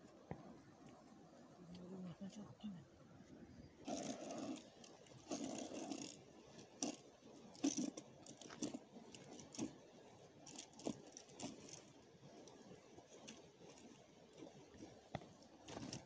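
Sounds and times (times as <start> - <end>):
ice chisel clinking and crunching: 7.6 - 9.7.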